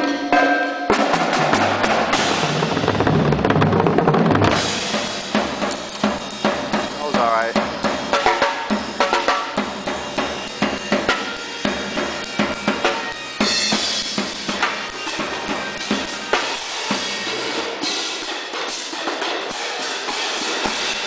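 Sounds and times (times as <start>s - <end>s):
snare and bass drums: 0.0s - 21.0s
crash cymbals clashing: 9.6s - 21.0s.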